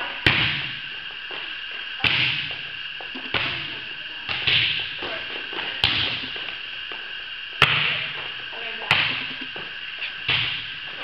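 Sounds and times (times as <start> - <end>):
volleyball smacks echoing: 0.2 - 0.8, 2.0 - 6.4, 7.6 - 8.2, 8.8 - 9.4, 10.2 - 10.8.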